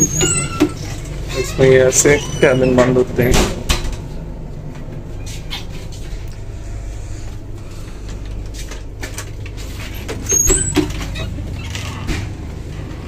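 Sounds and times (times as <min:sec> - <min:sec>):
train coach low hum: 0:00.0 - 0:11.6, 0:12.2 - 0:13.0.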